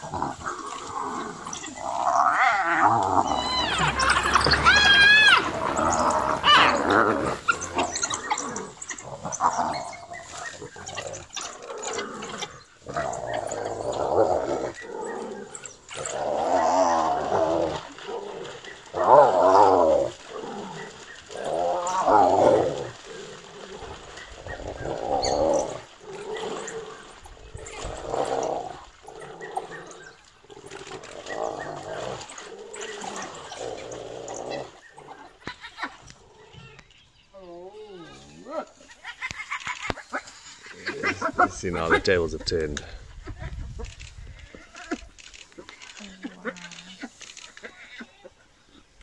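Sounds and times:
wavering growling yells: 0.0 - 10.8, 12.8 - 23.0
high-pitched animal calls: 0.7 - 14.8.

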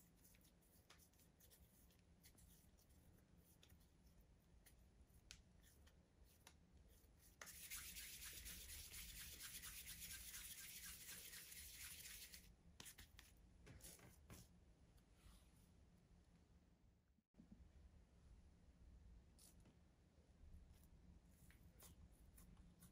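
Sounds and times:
dough rubbing between palms: 0.0 - 14.4.

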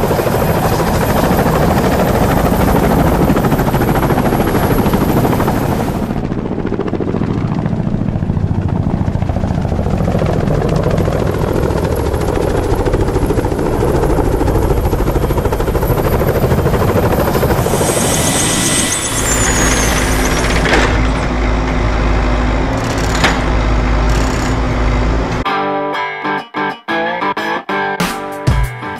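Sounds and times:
helicopter rotor chopping: 0.0 - 25.4
high falling whistle: 17.4 - 21.4.

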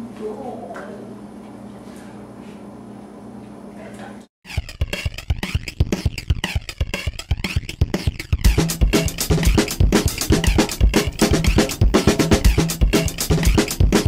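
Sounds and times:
music with drum beat: 4.4 - 14.0
fast rhythmic smacking clicks: 4.5 - 14.0.

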